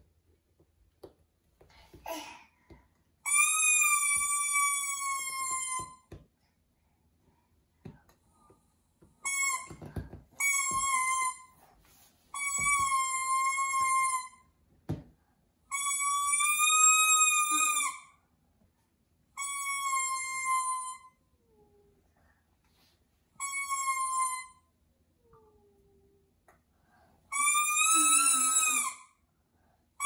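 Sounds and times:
toy trumpet toots: 27.3s - 29.0s.

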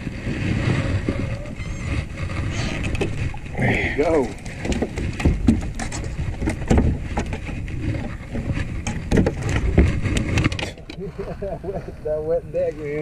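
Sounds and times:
fish flopping on boat deck: 0.0s - 12.0s
steady low rumble: 9.6s - 13.0s.

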